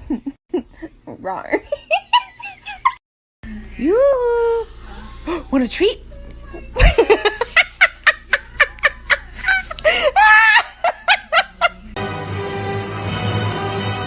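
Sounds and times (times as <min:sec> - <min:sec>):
person laughing: 0:06.8 - 0:12.0
music: 0:12.0 - 0:14.0.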